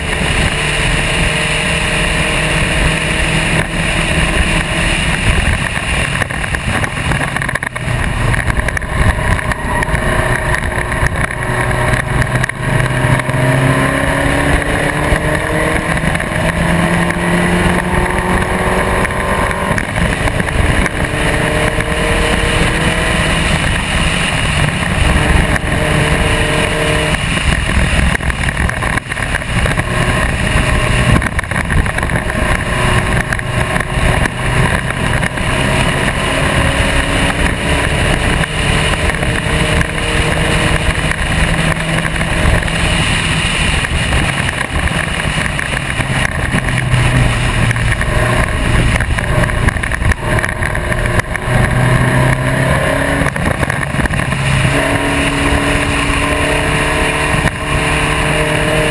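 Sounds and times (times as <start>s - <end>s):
racing car engine at speed: 0.0s - 58.9s
wind rush on microphone: 0.0s - 58.9s.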